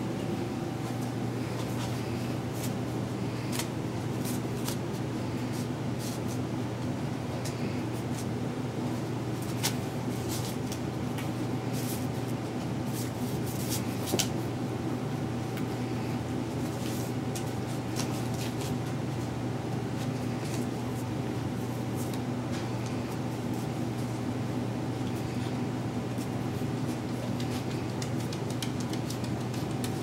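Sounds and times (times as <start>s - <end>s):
low room hum: 0.0s - 30.0s
puppies playing and scuffling: 15.6s - 30.0s.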